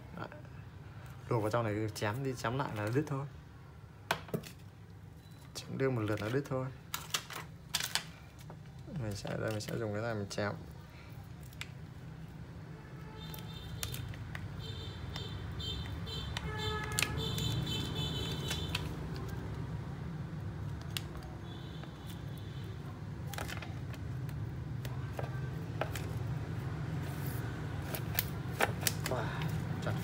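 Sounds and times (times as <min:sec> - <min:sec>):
plastic card scraping: 0:16.3 - 0:19.6, 0:23.2 - 0:30.0.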